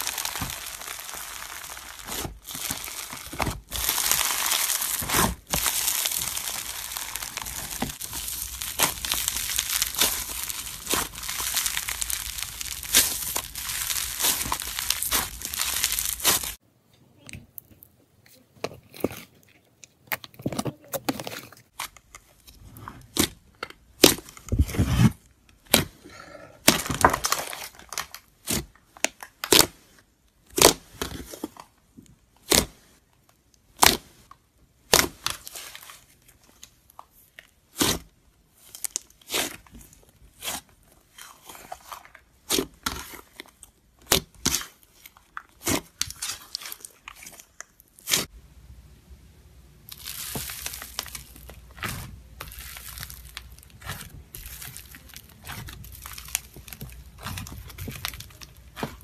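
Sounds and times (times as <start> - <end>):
slime popping and crackling: 0.0 - 16.6, 24.0 - 25.9, 26.6 - 29.8, 30.5 - 31.3, 32.4 - 32.7, 37.7 - 48.3, 49.8 - 59.0
slime squishing and tearing: 0.0 - 16.6, 20.1 - 26.0, 26.6 - 29.8, 30.4 - 31.8, 32.4 - 48.3, 49.8 - 59.0.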